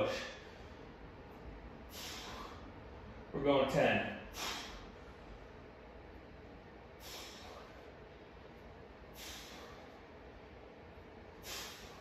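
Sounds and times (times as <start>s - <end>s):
man exhaling with effort: 1.8s - 2.8s, 4.2s - 5.0s, 6.9s - 8.0s, 9.1s - 10.0s, 11.4s - 12.0s.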